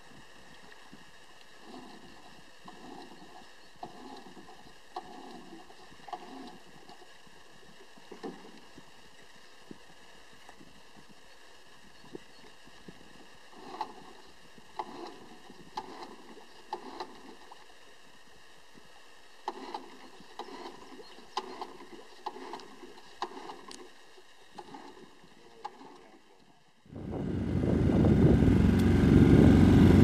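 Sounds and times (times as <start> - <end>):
oars splashing in water: 0.6 - 11.2, 11.9 - 17.8, 19.4 - 26.6
oars knocking in rowlocks: 1.6 - 7.1, 13.5 - 17.6, 19.4 - 26.5.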